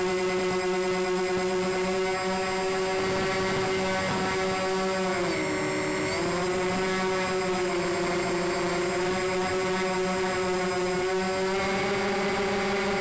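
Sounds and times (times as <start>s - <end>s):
model plane motors and propellers: 0.0s - 13.0s.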